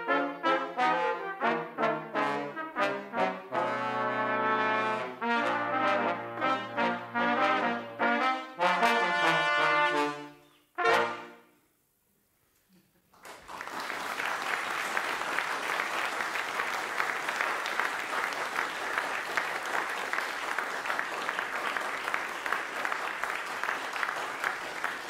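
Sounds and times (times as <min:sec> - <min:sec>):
brass quartet chord: 0:00.0 - 0:11.6
audience applause: 0:13.2 - 0:25.0.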